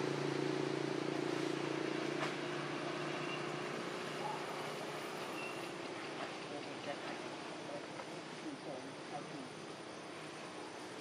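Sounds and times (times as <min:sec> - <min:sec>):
engine drone: 0:00.0 - 0:07.9.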